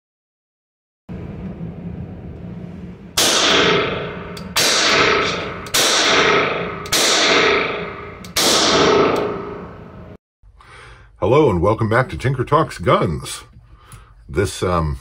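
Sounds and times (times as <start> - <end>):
revolver shots echoing: 3.2 - 10.2.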